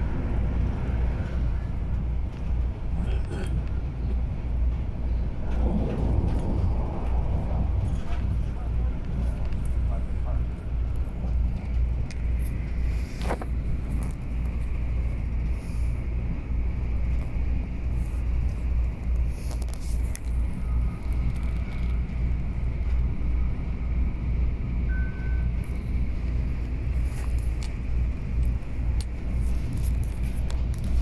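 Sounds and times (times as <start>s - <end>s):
train running low rumble: 0.0s - 31.0s
faint high whine: 24.9s - 25.9s.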